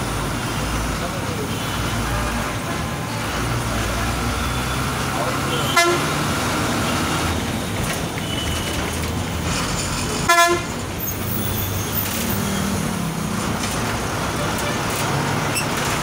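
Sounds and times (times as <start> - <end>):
bus engine and road noise: 0.0 - 16.0
vehicle horn toot: 5.5 - 6.1, 10.3 - 10.7.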